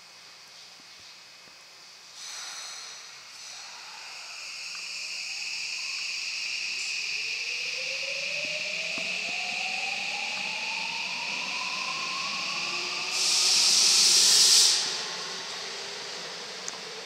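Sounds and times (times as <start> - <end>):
air brakes hissing: 2.1 - 17.0
electric train motor whine: 3.5 - 17.0.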